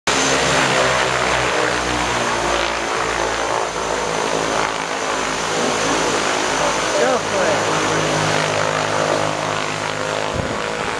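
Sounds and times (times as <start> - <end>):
turboprop engines and propellers running: 0.1 - 10.9.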